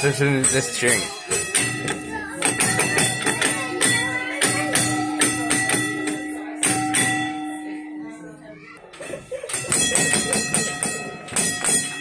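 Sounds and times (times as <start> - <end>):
sharp percussive beat: 0.4 - 7.4, 9.4 - 12.0.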